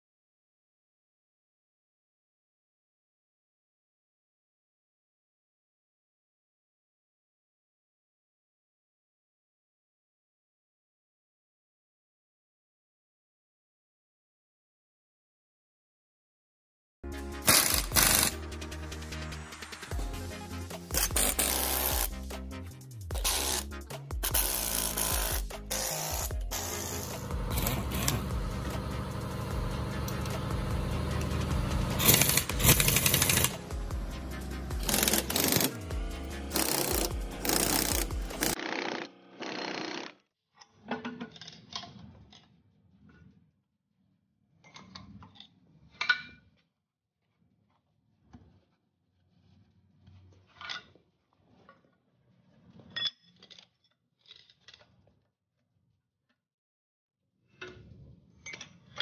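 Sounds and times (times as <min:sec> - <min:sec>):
impact wrench hammering: 0:17.4 - 0:18.4, 0:20.8 - 0:22.2, 0:23.2 - 0:38.6
steady low hum: 0:26.5 - 0:35.0
steel parts clinking and scraping: 0:32.0 - 0:33.7, 0:34.4 - 0:35.9.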